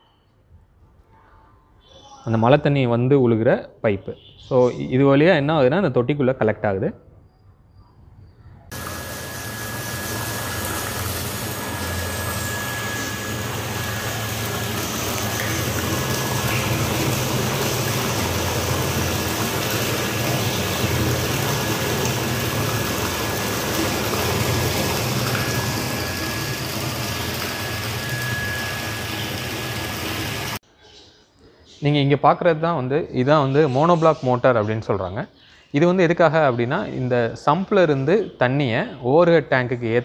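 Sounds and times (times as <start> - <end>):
water pouring into tank: 8.7 - 30.6.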